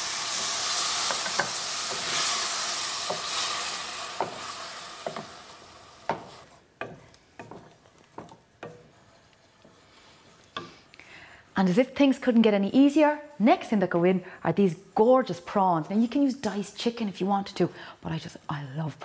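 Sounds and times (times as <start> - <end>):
curry sizzling in a saucepan: 0.0 - 10.9
wooden spoon scraping a pan: 0.3 - 10.9.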